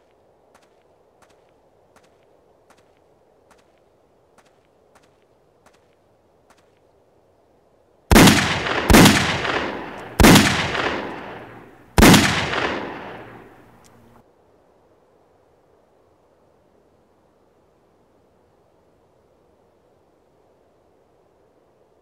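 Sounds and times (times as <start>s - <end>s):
rifle shots echoing: 8.1s - 14.2s.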